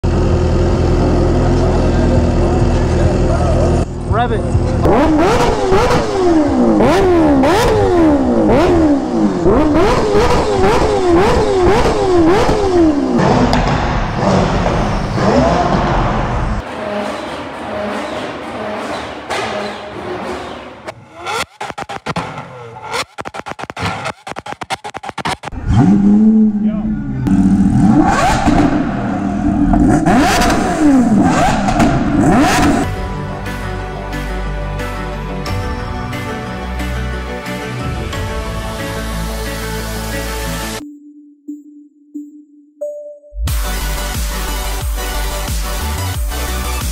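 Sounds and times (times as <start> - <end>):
motorcycle engine revving: 0.0 - 33.0
music: 32.8 - 46.9.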